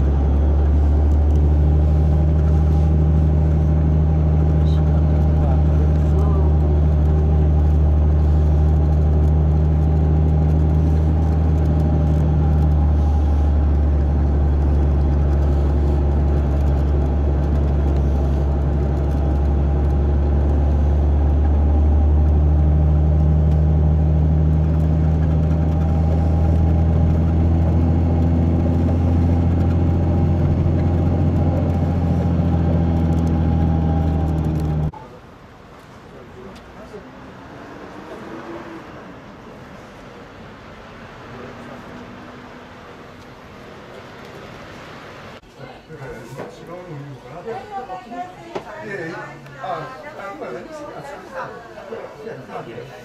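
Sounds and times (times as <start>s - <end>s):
vehicle engine hum inside cabin: 0.0s - 35.0s
road noise: 0.0s - 53.0s.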